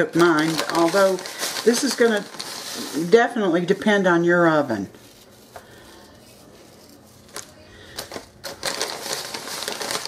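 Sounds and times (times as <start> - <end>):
baking sheet rattling: 0.0 - 4.0, 6.2 - 10.0.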